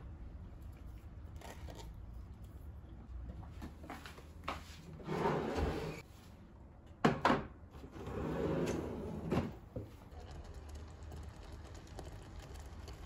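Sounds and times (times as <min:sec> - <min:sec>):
drawer sliding on runners: 0:05.0 - 0:06.0, 0:07.9 - 0:09.6.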